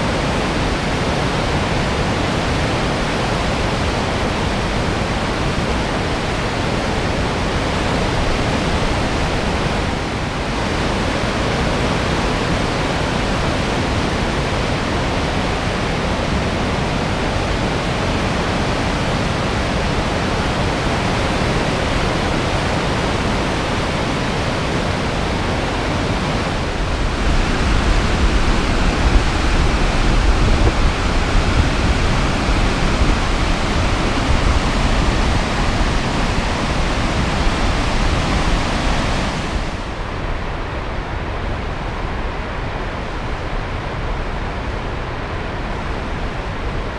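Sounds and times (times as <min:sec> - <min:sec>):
whitewater rapids rushing: 0:00.0 - 0:46.9
deep gusty rumble: 0:23.1 - 0:46.9.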